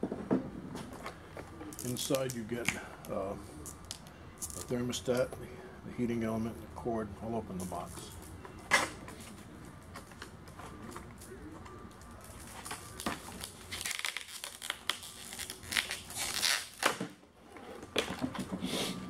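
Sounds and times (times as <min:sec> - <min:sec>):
plastic crackling and crinkling: 0:01.6 - 0:04.8, 0:10.0 - 0:17.1
plastic packaging snapping: 0:12.3 - 0:17.1.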